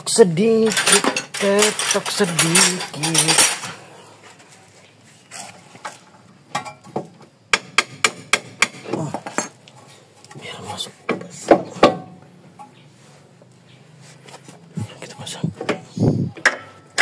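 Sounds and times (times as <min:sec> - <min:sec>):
clatter of metal parts: 0:00.5 - 0:04.4.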